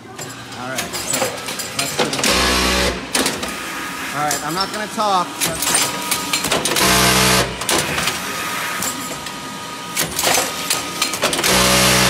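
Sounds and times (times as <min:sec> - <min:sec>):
machine clattering and clicks: 0:00.0 - 0:03.6, 0:05.4 - 0:08.2, 0:10.0 - 0:12.0
strapping machine whirring: 0:00.0 - 0:12.0.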